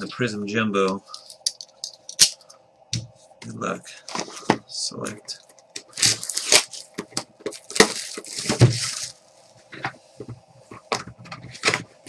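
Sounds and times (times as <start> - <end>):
shrink wrap crinkling: 5.1 - 9.6.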